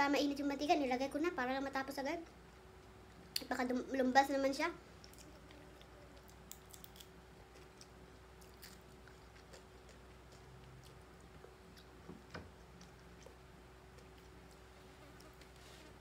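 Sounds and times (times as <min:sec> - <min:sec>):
steady low hum: 0:00.0 - 0:16.0
chewing and mouth clicks: 0:05.0 - 0:12.0, 0:12.6 - 0:15.6.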